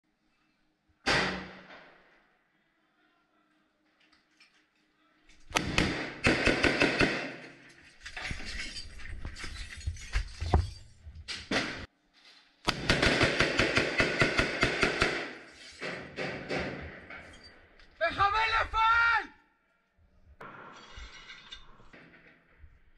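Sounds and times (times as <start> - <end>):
rifle gunfire: 5.5 - 7.4, 12.7 - 15.4.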